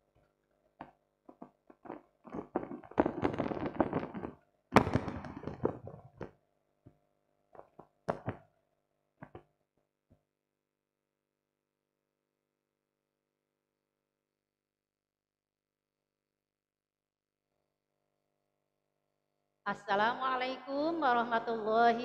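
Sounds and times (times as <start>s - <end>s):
taps and knocks on microphone: 0.8s - 8.5s, 9.2s - 9.5s.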